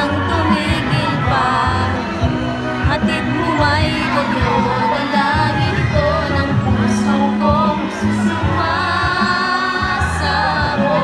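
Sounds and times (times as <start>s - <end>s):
pop song with vocals: 0.0s - 11.0s.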